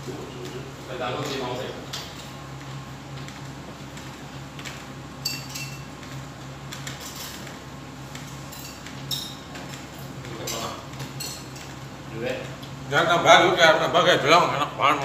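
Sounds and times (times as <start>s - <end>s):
steady low hum: 0.0s - 15.0s
utensils clinking on dishes: 5.2s - 5.9s, 8.4s - 11.8s.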